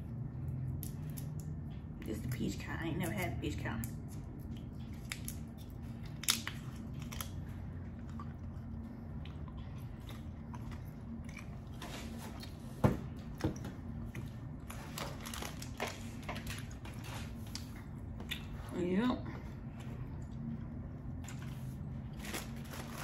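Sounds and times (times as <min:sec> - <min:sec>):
close chewing with mouth clicks: 0:04.1 - 0:12.8.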